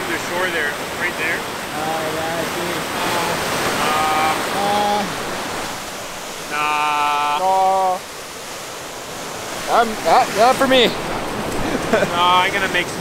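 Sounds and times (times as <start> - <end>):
water rushing over rapids: 0.0 - 13.0
man calling out: 1.1 - 5.2, 6.4 - 8.1.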